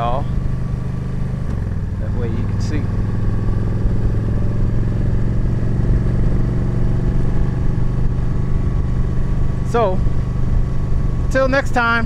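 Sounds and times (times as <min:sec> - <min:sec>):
motorcycle engine running: 0:00.0 - 0:12.0
road noise: 0:00.0 - 0:12.0.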